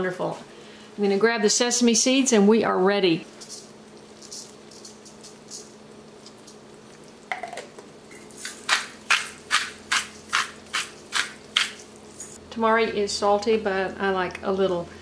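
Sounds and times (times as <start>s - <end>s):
crisp seasoning strokes: 8.2s - 12.4s.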